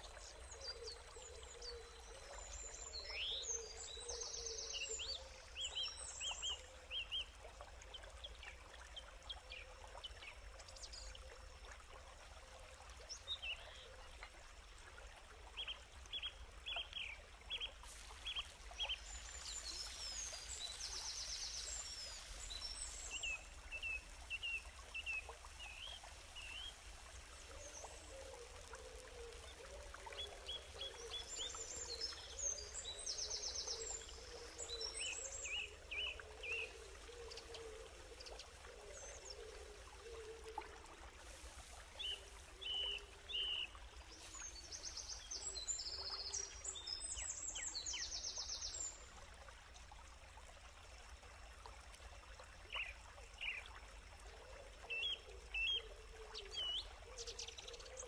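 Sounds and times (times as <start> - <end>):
running water: 0.0 - 58.0
small birds chirping: 15.6 - 40.2.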